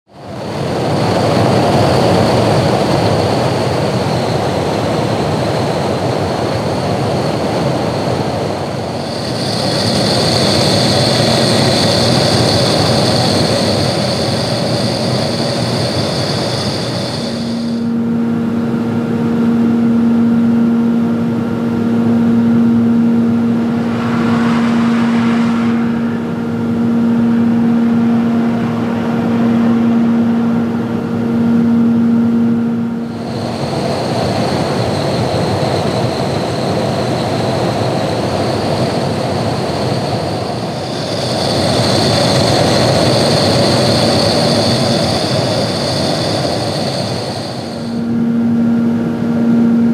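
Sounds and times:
aircraft engine turbine whine: 0:00.1 - 0:49.9
low droning hum: 0:17.4 - 0:33.3, 0:46.0 - 0:49.9.

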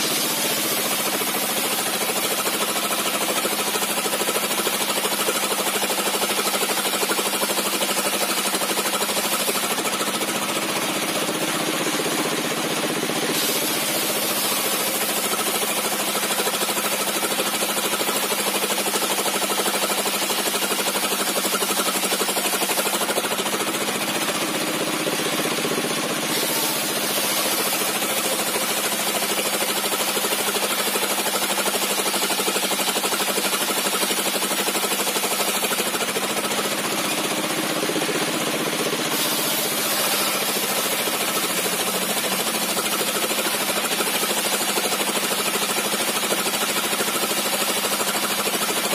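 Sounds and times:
circular saw cutting timber: 0:00.0 - 0:48.9.

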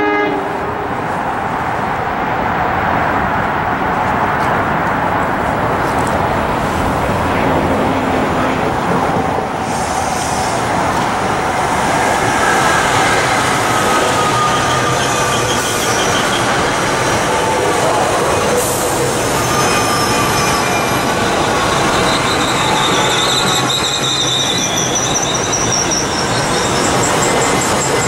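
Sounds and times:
train cars rumbling past: 0:00.0 - 0:28.0
high wheel squeal: 0:09.4 - 0:28.0.

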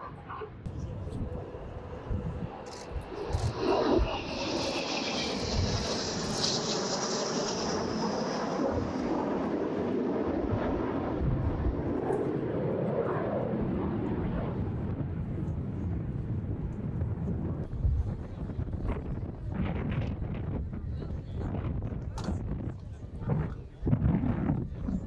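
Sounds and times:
jet engines running: 0:00.0 - 0:25.0.

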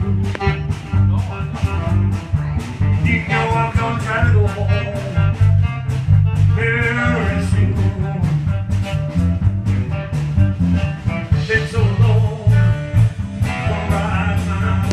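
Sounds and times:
guitar: 0:00.0 - 0:14.9
steady drumbeat: 0:00.0 - 0:14.9
stepping bass line: 0:00.0 - 0:14.9
person singing: 0:03.0 - 0:05.4, 0:06.5 - 0:08.5, 0:11.2 - 0:14.9.

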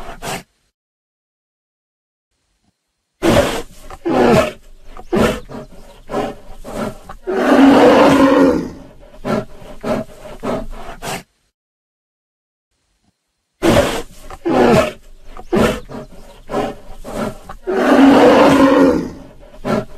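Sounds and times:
lions growling: 0:03.2 - 0:11.3, 0:13.6 - 0:19.9.

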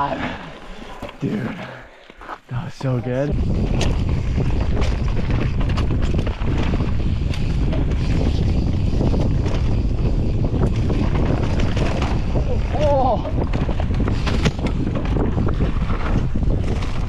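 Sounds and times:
tyres running on dirt: 0:00.5 - 0:17.0
wind buffeting microphone: 0:02.5 - 0:17.0
bike knocks and clatters: 0:03.5 - 0:17.0.

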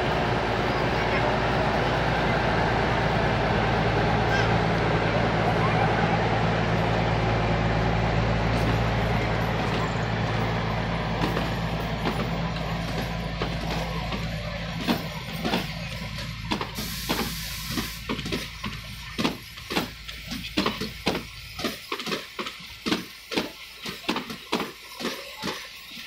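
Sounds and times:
diesel locomotive engine running: 0:00.0 - 0:26.0
train wheels clacking over rail joints: 0:07.8 - 0:26.0.

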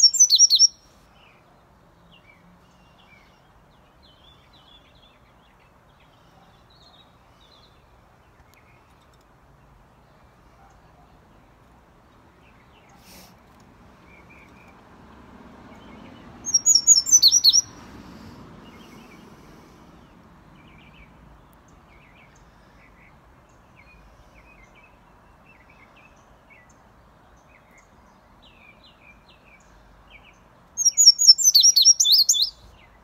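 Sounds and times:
faint bird chirps: 0:00.0 - 0:01.6, 0:15.8 - 0:17.8, 0:30.8 - 0:33.0
bird song high paired notes: 0:16.5 - 0:17.7.

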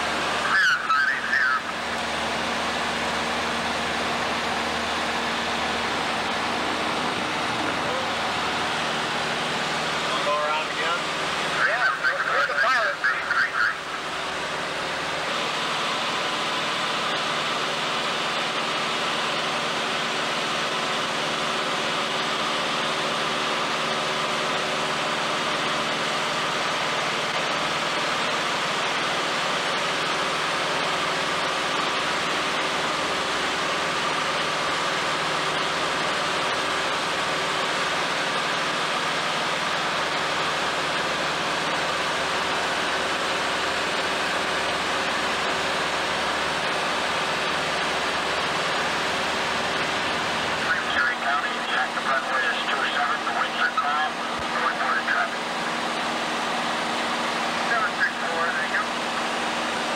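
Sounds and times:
aircraft engine drone: 0:00.0 - 0:59.9.

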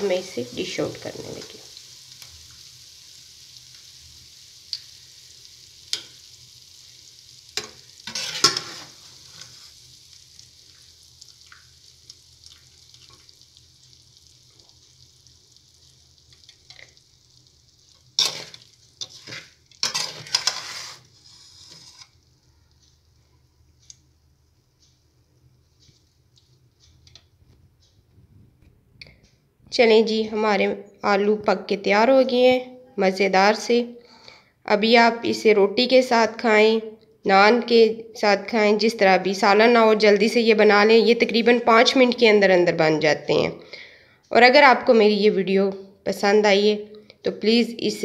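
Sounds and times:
hot oil sizzling: 0:00.0 - 0:24.1
metal spoon scraping a pan: 0:07.5 - 0:09.8, 0:18.1 - 0:22.2.

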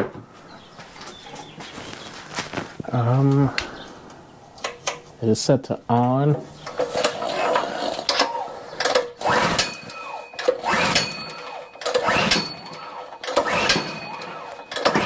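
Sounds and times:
engine cranking with clicks: 0:06.6 - 0:15.0
recoil starter rope pulls: 0:06.6 - 0:15.0.

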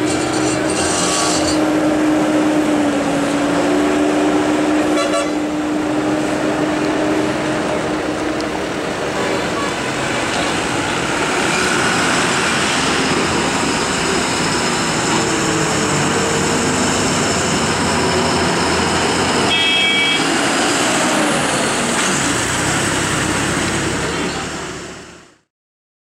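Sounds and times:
lorry diesel engine running: 0:00.0 - 0:25.5
road and traffic noise: 0:00.0 - 0:25.5
short vehicle horn toot: 0:04.9 - 0:05.4, 0:19.5 - 0:20.3.

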